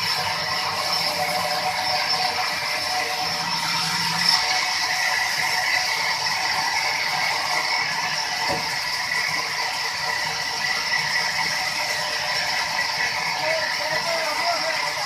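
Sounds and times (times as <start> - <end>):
band saw rattling and whining: 0.0 - 15.0.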